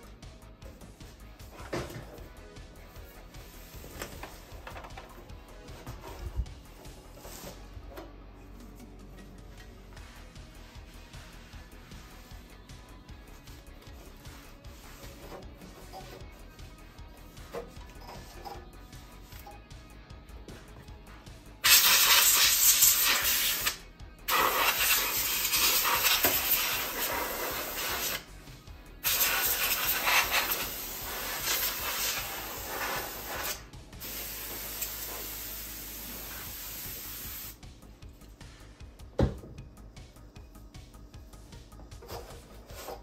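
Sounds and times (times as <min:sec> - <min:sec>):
aerosol can spraying: 0:21.6 - 0:28.3, 0:29.0 - 0:37.6.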